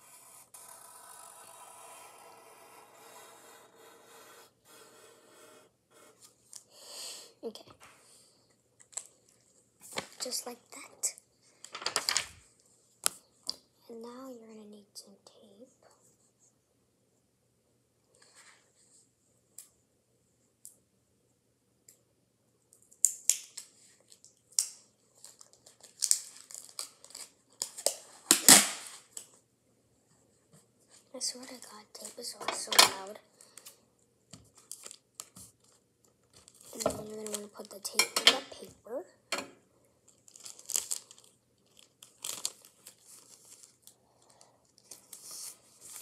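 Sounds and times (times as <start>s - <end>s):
adhesive tape crinkling: 23.0s - 29.0s, 40.1s - 44.0s.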